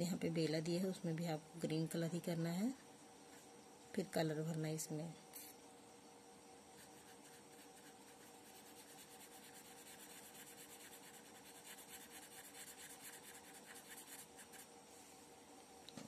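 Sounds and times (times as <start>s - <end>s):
pen scratching on paper: 6.8s - 14.7s.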